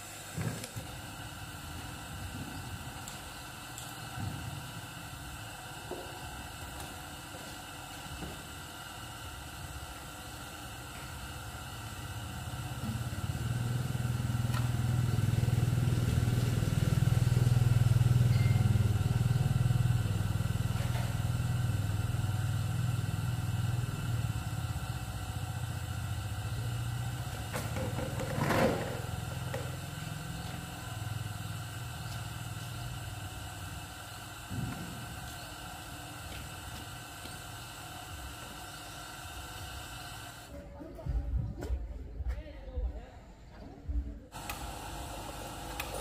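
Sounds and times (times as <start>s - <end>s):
motorcycle engine running: 12.0s - 33.6s.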